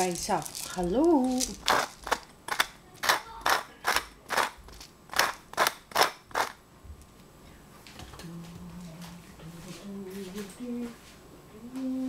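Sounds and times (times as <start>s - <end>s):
pepper mill grinding: 0.0s - 6.6s.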